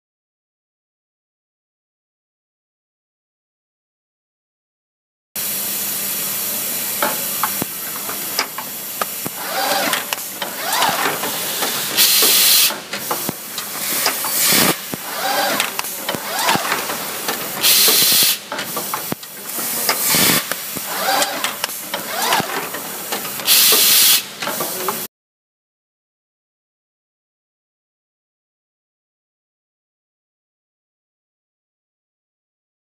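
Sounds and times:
compressed air hissing: 5.4s - 25.0s
machine clattering and clicking: 7.0s - 25.0s.

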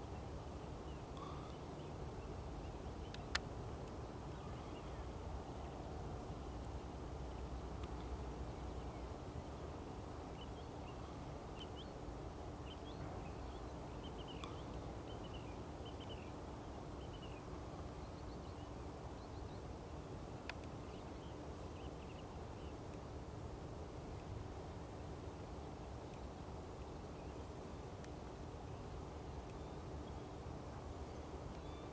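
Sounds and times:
small birds chirping: 0.0s - 5.8s, 6.7s - 23.1s, 25.6s - 31.9s
faint constant hum: 0.0s - 31.9s
low outdoor rumble: 0.0s - 31.9s
sharp clicks: 3.1s - 4.0s.

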